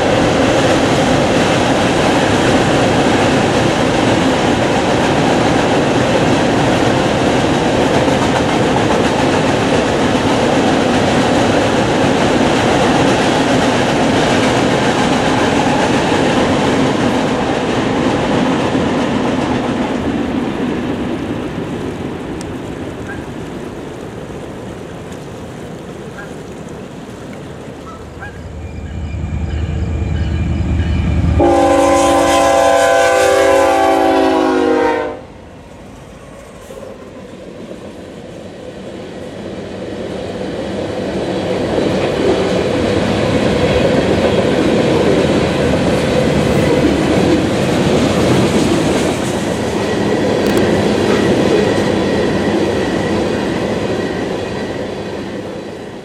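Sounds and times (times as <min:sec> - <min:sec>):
train wheels clattering on rails: 0:00.0 - 0:23.5, 0:40.8 - 0:56.0
diesel locomotive engine rumble: 0:00.0 - 0:56.0
locomotive horn chord: 0:28.4 - 0:35.4.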